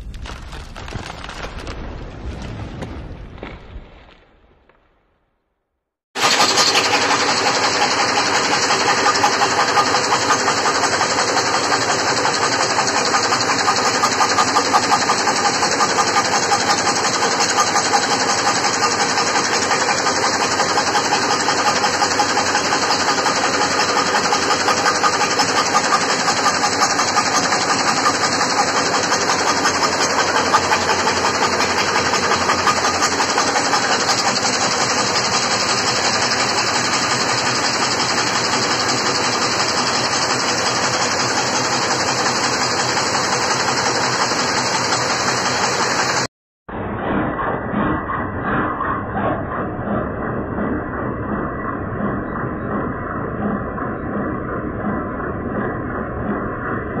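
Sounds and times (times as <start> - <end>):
nail making machine clatter: 6.2 - 46.3.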